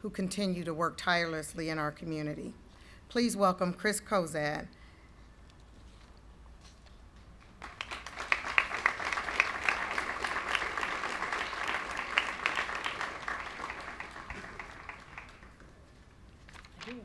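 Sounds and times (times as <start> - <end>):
audience applauding: 7.6 - 15.7.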